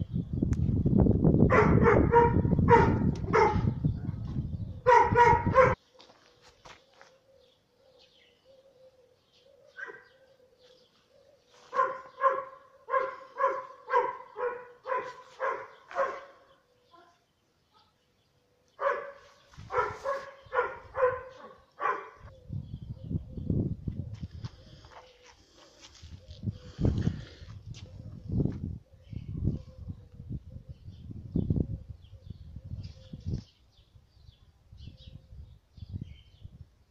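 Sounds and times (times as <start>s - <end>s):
dog barking: 1.5s - 3.8s, 4.8s - 5.8s, 9.8s - 10.1s, 11.7s - 17.2s, 18.8s - 22.3s.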